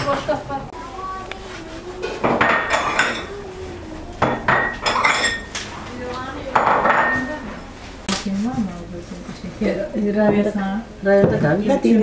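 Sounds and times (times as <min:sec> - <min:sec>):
dishes and utensils clattering: 0:00.0 - 0:00.6, 0:01.9 - 0:03.5, 0:04.1 - 0:08.2.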